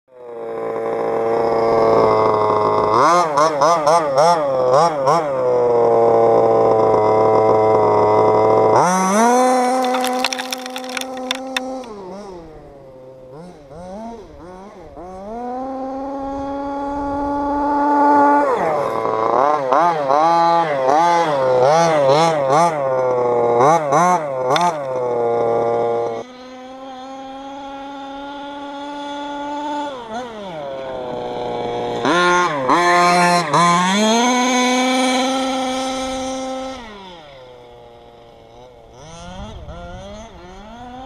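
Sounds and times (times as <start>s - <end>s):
gravel clicking: 9.6s - 12.0s.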